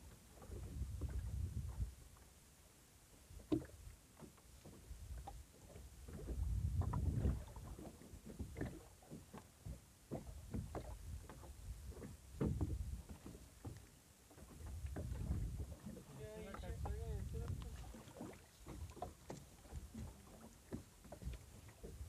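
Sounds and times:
wind rumble on microphone: 0.0s - 2.2s, 4.8s - 8.9s, 9.6s - 13.4s, 14.5s - 19.0s, 21.2s - 22.0s
water splashes: 3.3s - 22.0s.

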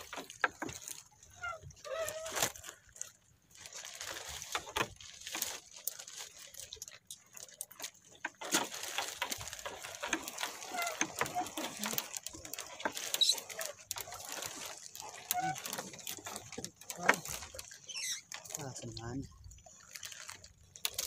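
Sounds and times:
net knocking and rustling on hull: 0.0s - 21.0s.

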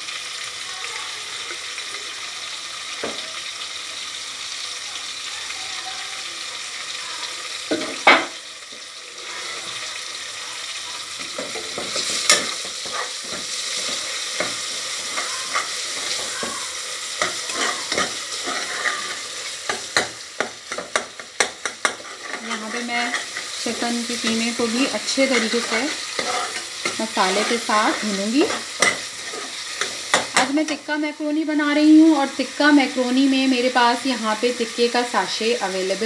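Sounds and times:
mince sizzling in a saucepan: 0.0s - 36.0s
spoon knocking against pan: 11.2s - 22.5s, 28.5s - 30.6s.

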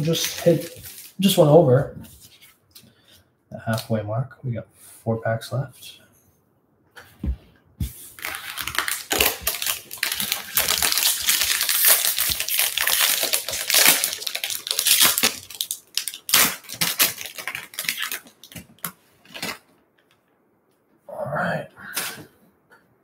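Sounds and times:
foil wrapper tearing and crinkling: 0.0s - 1.4s, 8.1s - 19.6s.

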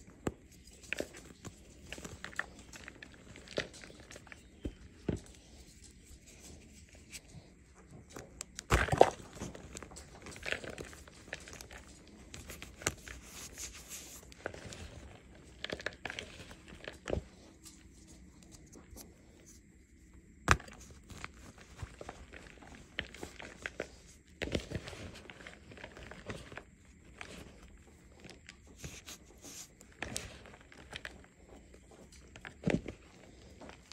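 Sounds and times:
chalk crunching and crackling: 9.0s - 19.6s, 20.5s - 33.9s.

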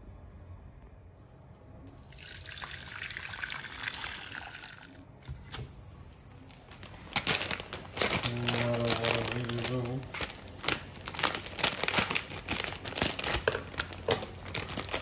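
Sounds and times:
water pouring into a saucepan: 1.9s - 5.0s.

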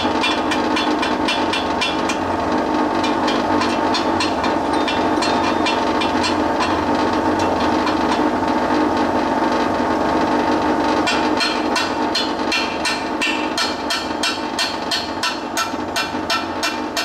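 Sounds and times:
welder cooling fan hum: 0.0s - 17.0s
hammer tapping on cast iron: 11.1s - 17.0s.

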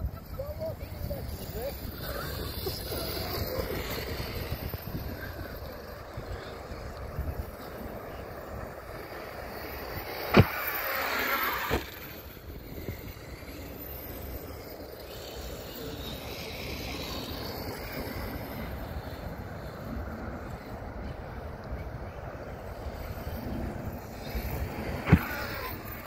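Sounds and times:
wind on microphone: 0.0s - 13.6s
rc truck motor whine: 0.0s - 26.0s
tyres running across sand: 0.0s - 26.0s.

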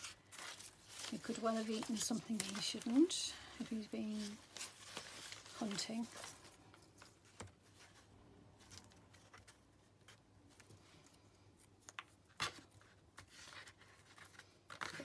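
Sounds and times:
paper scraps rustling: 0.0s - 9.6s.

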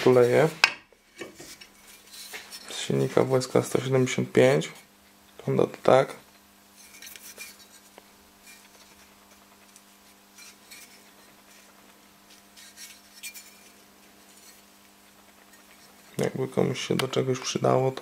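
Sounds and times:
low electrical hum: 0.0s - 18.0s
metal cylinder clicks and rubs: 6.8s - 16.2s.

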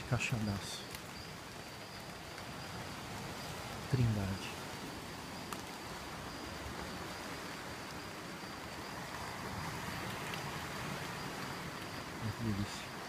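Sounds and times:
high insect drone: 0.0s - 13.0s
rain hiss: 0.0s - 13.0s.

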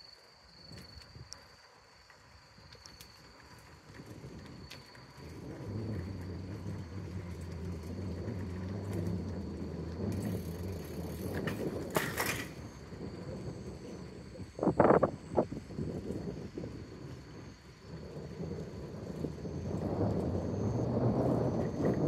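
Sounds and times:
vehicle engine rumbling: 4.0s - 15.6s.

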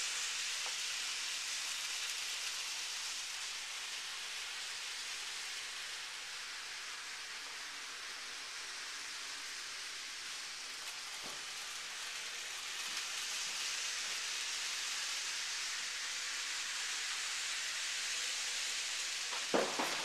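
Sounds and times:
model train wheels and motor: 0.0s - 20.0s.

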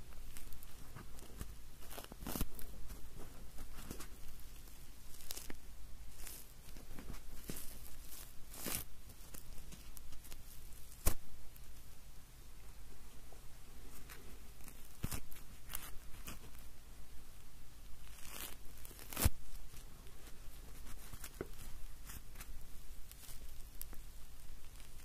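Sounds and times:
marshmallow tearing with sticky crackles: 0.0s - 11.8s, 13.9s - 16.8s, 17.8s - 25.0s
sharp snaps: 7.4s - 11.3s.

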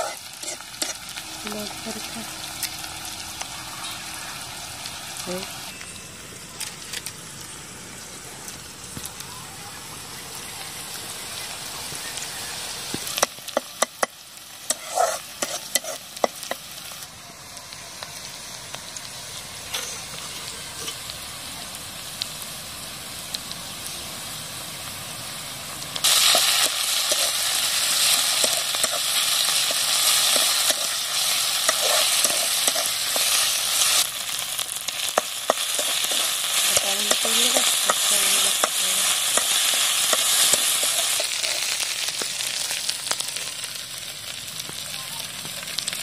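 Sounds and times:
onions sizzling in oil: 0.0s - 46.0s
metal spatula scraping pan: 14.7s - 16.0s.

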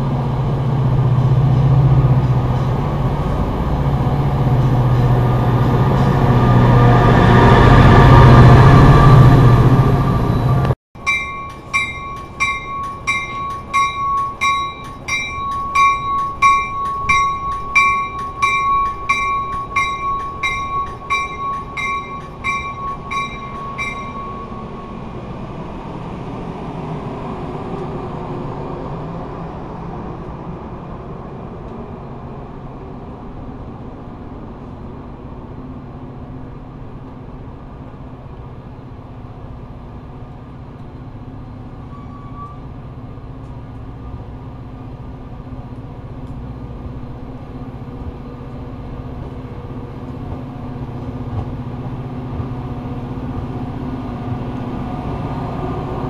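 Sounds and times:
train wheels rumbling on rails: 0.0s - 56.0s
bell ringing: 11.0s - 25.0s.

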